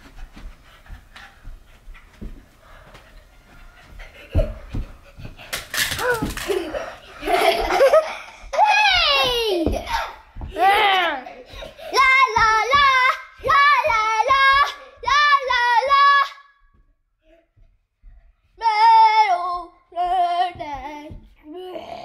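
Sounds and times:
child singing: 0:11.9 - 0:16.5, 0:18.6 - 0:22.0.

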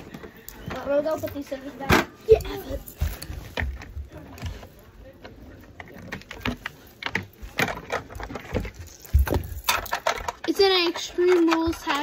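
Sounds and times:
plastic action figures clicking: 0:05.2 - 0:12.0.

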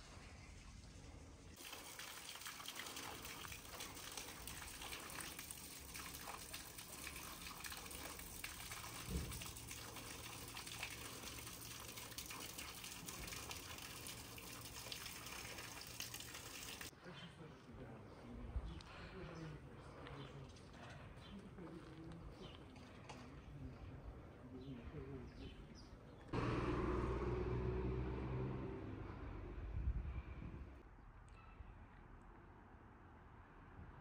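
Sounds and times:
running water: 0:00.0 - 0:16.9.

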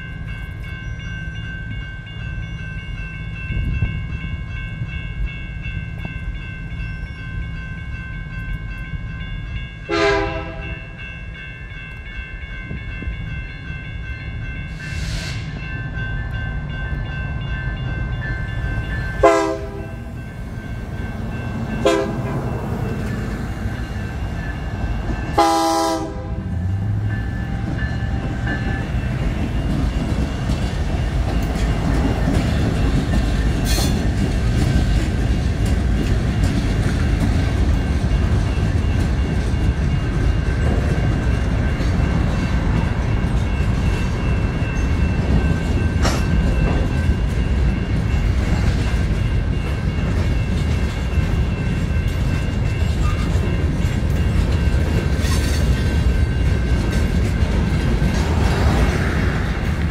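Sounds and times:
crossing warning bell ringing: 0:00.0 - 0:59.9
freight train rumbling: 0:00.0 - 0:59.9
locomotive horn blast: 0:09.9 - 0:10.8, 0:19.2 - 0:20.1, 0:21.8 - 0:22.5, 0:25.4 - 0:26.9.

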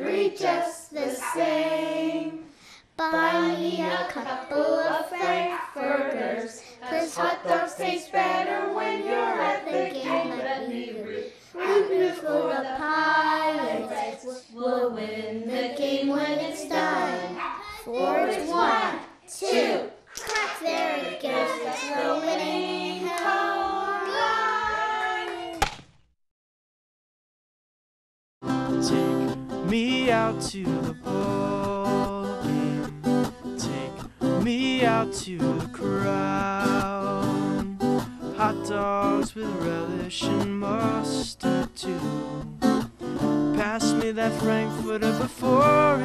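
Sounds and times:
child singing: 0:00.0 - 0:02.4, 0:03.0 - 0:25.2
acoustic guitar strumming: 0:28.4 - 0:46.0
guitar melody: 0:28.5 - 0:46.0.

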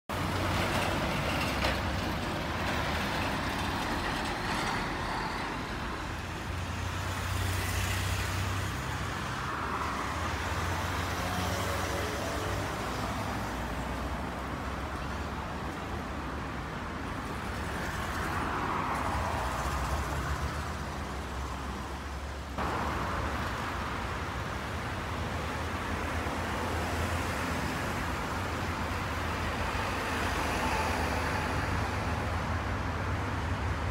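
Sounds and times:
train wheel noise: 0:00.1 - 0:05.9
diesel locomotive rumble: 0:00.1 - 0:06.4.

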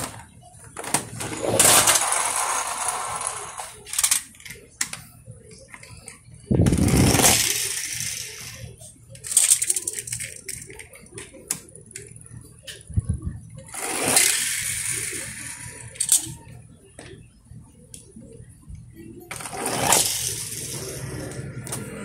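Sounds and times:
toy car wheels rattling: 0:00.0 - 0:04.6, 0:05.8 - 0:12.1, 0:13.6 - 0:16.5, 0:19.3 - 0:21.9
toy cars clattering on concrete: 0:00.0 - 0:12.1, 0:13.6 - 0:17.2, 0:19.3 - 0:21.9.

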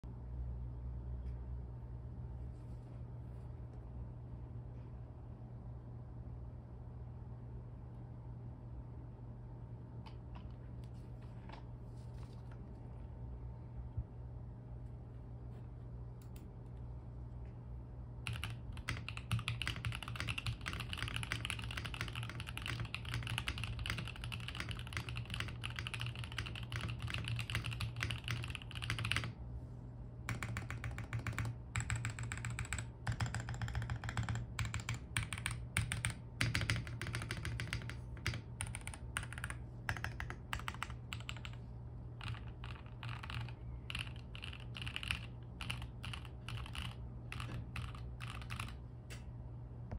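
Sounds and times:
mechanical keyboard typing: 0:18.2 - 0:29.4, 0:30.3 - 0:41.6, 0:42.2 - 0:48.8.

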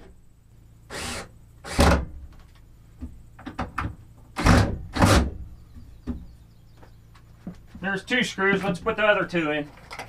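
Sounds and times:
handling clicks and knocks: 0:08.5 - 0:10.0.

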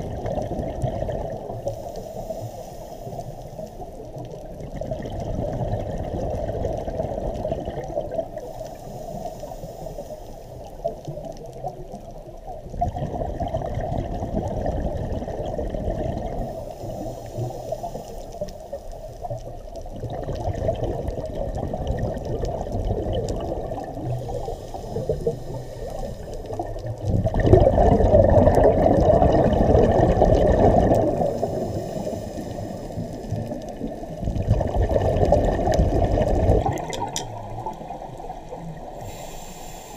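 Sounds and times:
diver inhaling through regulator: 0:01.6 - 0:04.0, 0:08.4 - 0:11.0, 0:16.3 - 0:19.2, 0:24.0 - 0:27.0, 0:30.6 - 0:33.8, 0:37.2 - 0:39.9
regulator exhalation bubbling: 0:20.0 - 0:37.9.

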